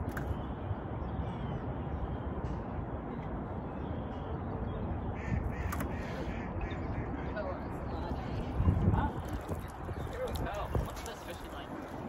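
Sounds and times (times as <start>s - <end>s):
steady low rumble: 0.0s - 12.0s
harsh bird calls: 3.6s - 10.2s.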